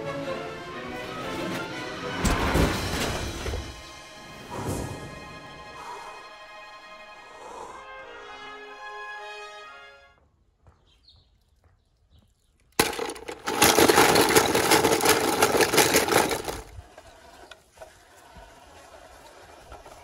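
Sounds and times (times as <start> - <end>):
rapid rattling and scraping: 12.8 - 20.0.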